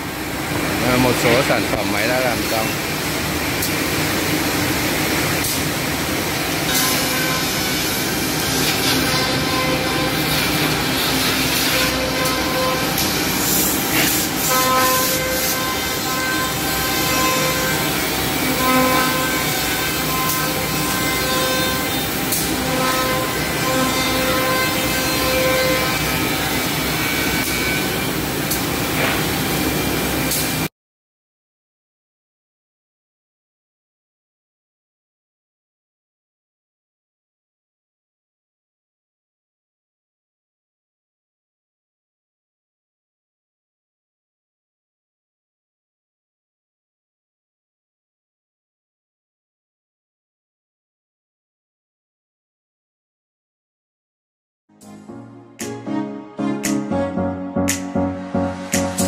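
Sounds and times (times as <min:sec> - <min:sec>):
machine whining note: 0:06.6 - 0:28.4.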